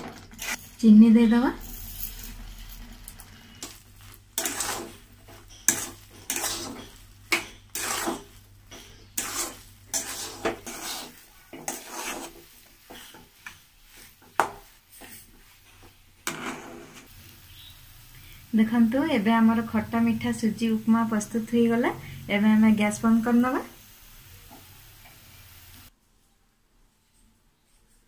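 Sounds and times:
spatula scraping metal pan: 1.8 - 17.7.

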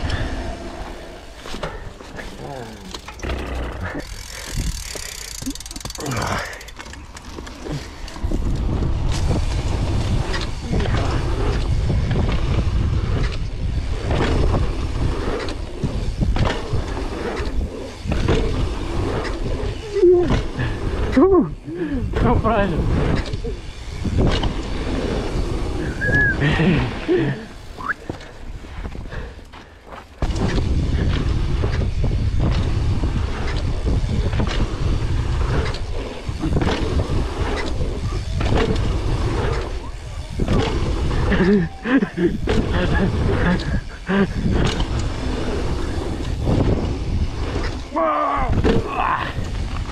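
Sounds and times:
wind rumbling on microphone: 0.0 - 29.4, 30.2 - 49.9
bike knocking and rattling: 0.0 - 49.9
tyres running over dirt: 0.0 - 49.9
person speaking: 2.2 - 3.1.

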